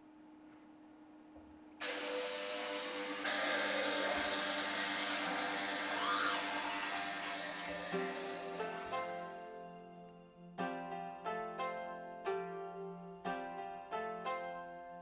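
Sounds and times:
ultrasonic cleaner buzzing hiss: 0:01.8 - 0:09.6.

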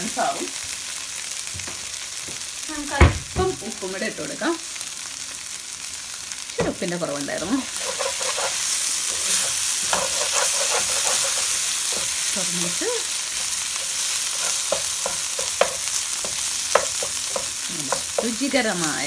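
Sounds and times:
food sizzling in a pan: 0:00.0 - 0:19.0
spatula scraping and tapping pan: 0:07.4 - 0:18.4.

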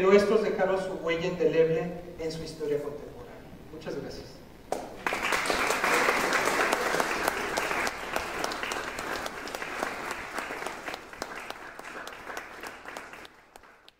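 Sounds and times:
audience applauding: 0:04.8 - 0:13.9.

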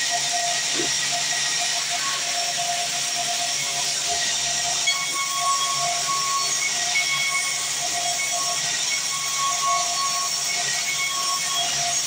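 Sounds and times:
steady whining tones: 0:00.0 - 0:11.9
band saw cutting wood: 0:00.0 - 0:12.0.

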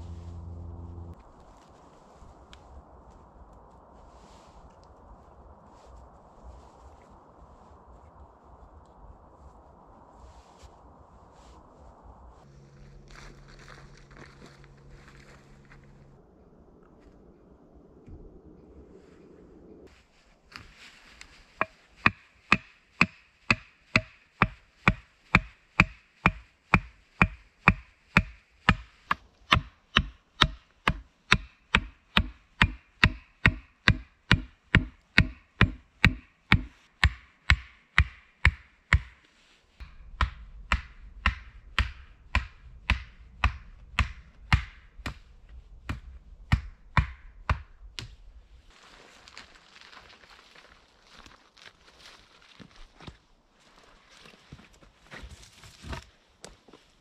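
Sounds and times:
low rumble: 0:00.0 - 0:20.4, 0:39.8 - 0:48.7
wood chopping strikes: 0:21.6 - 0:39.2, 0:39.8 - 0:45.2, 0:45.9 - 0:48.1.

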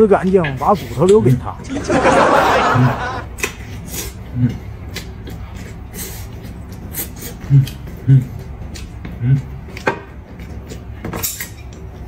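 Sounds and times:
low hums: 0:01.2 - 0:03.4
man chewing meat off bone: 0:03.4 - 0:11.0.

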